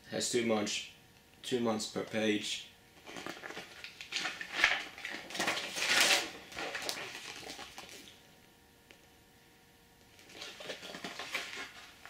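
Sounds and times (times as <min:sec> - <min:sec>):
paper pages rustling and flapping: 0:03.0 - 0:08.2, 0:10.1 - 0:12.0.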